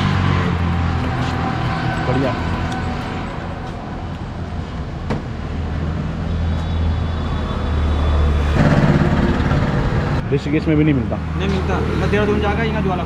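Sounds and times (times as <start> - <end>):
vehicle engine rumble: 0.0 - 13.0.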